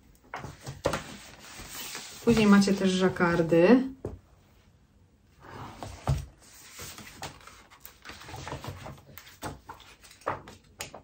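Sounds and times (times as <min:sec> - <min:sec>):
paper pages rustling: 0:00.2 - 0:03.0, 0:05.9 - 0:11.0.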